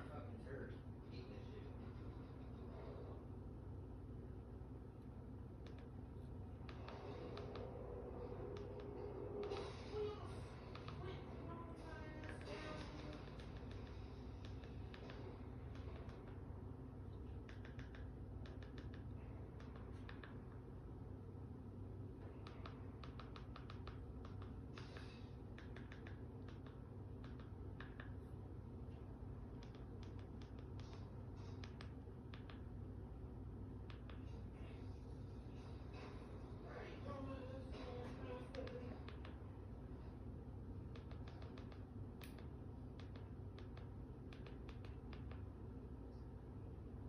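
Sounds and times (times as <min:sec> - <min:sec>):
steady low hum: 0:00.0 - 0:47.0
light irregular clicks: 0:10.5 - 0:11.2, 0:17.1 - 0:20.6, 0:22.1 - 0:28.4, 0:29.0 - 0:33.0, 0:33.7 - 0:34.5, 0:38.4 - 0:39.4, 0:40.8 - 0:45.6.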